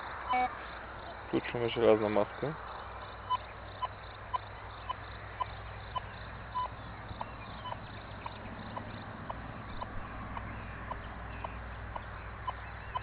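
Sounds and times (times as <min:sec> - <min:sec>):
metal detector beeping: 0:00.3 - 0:00.5, 0:04.8 - 0:06.7
steady low hum: 0:02.2 - 0:13.0.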